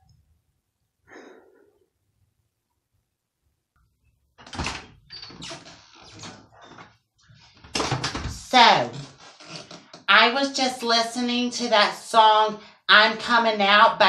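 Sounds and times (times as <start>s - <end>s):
door opening with thump: 4.4s - 6.9s.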